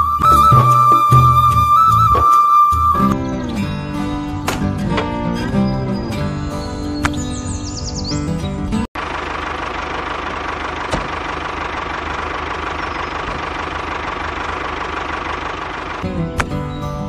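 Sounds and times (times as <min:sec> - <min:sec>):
music: 0:00.0 - 0:08.9, 0:16.0 - 0:17.0.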